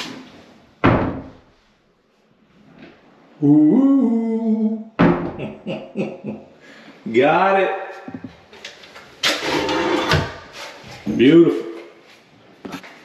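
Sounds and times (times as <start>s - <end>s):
closet door thudding shut: 0.8s - 1.4s, 5.0s - 5.4s
man humming: 3.4s - 5.0s.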